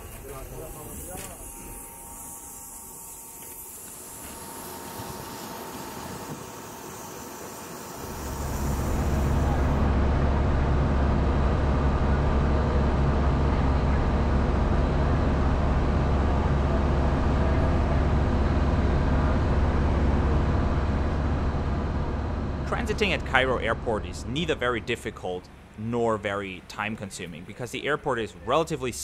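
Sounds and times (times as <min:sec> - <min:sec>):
bus engine and road rumble: 0:08.2 - 0:25.9.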